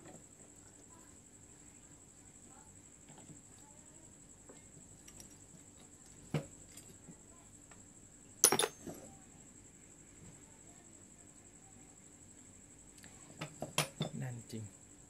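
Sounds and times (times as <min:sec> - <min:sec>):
metal knocks and clinks: 0:08.4 - 0:09.1, 0:13.4 - 0:14.2.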